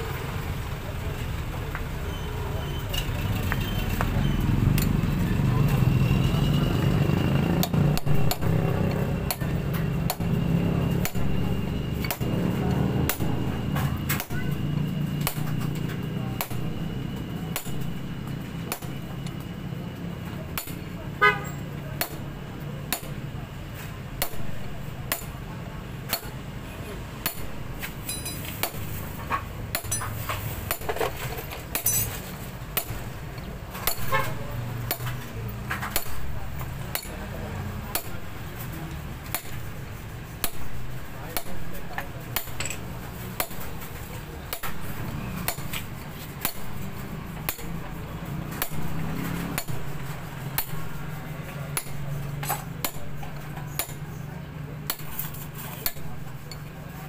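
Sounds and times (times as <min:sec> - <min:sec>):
hammer striking steel punch: 0:07.6 - 0:19.4, 0:20.5 - 0:23.3, 0:24.2 - 0:25.4, 0:26.1 - 0:26.4, 0:27.2 - 0:35.2, 0:35.8 - 0:37.2, 0:37.9 - 0:38.4, 0:39.3 - 0:39.7, 0:40.4 - 0:43.8, 0:44.5 - 0:47.8, 0:48.5 - 0:51.0, 0:51.7 - 0:54.0, 0:54.8 - 0:56.6
metal rod knocking and scraping: 0:27.3 - 0:37.2, 0:41.4 - 0:43.8, 0:54.9 - 0:56.8.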